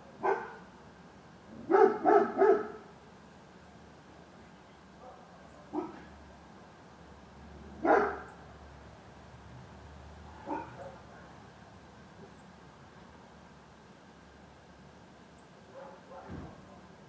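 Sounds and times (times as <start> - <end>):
dog barking: 0.2 - 0.6, 1.7 - 2.8, 5.0 - 6.1, 7.8 - 8.3, 10.4 - 11.2, 15.7 - 16.9.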